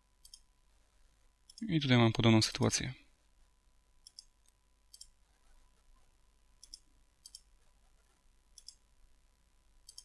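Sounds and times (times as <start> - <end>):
computer mouse clicks: 0.2 - 0.5, 4.0 - 5.2, 6.6 - 7.5, 8.5 - 8.8.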